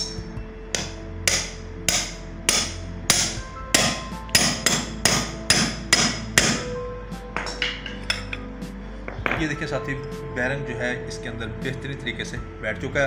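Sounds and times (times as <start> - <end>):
hammer striking metal sleeve: 0.0 - 6.7, 7.4 - 8.4.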